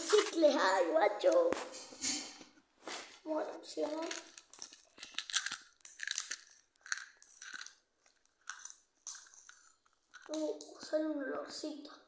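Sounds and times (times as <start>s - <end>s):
foil wrapper crinkling: 3.9s - 10.3s.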